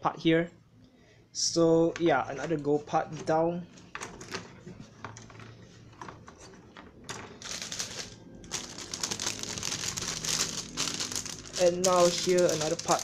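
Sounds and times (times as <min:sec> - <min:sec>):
plastic bag crinkling: 0:07.3 - 0:13.0.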